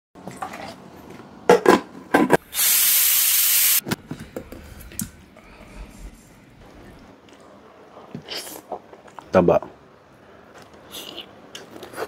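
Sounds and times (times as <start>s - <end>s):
pressure cooker steam hiss: 2.5s - 3.8s.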